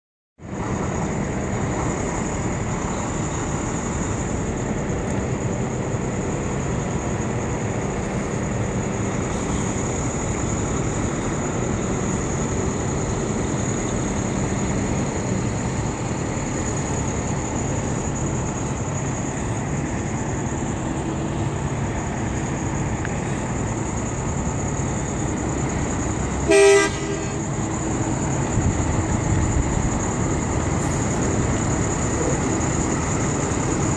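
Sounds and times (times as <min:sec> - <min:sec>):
diesel truck engine running: 0:00.4 - 0:33.9
truck horn toot: 0:26.4 - 0:27.6.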